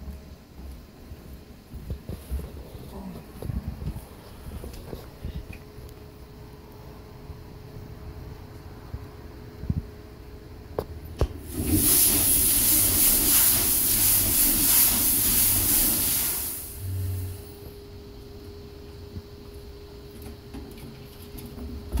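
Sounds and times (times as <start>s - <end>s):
compressed air hissing: 11.4s - 17.8s.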